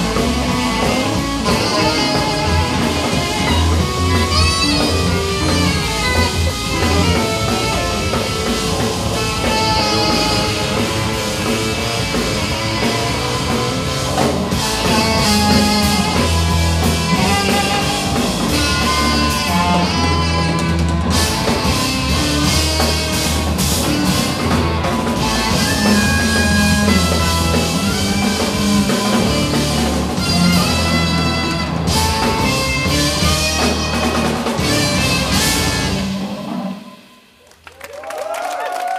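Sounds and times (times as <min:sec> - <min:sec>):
live rock band playing: 0:00.0 - 0:37.4.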